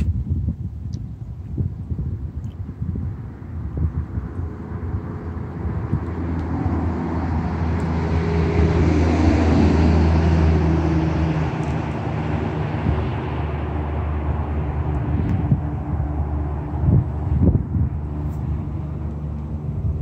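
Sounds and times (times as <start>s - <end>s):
low engine-like rumble: 0.0s - 20.0s.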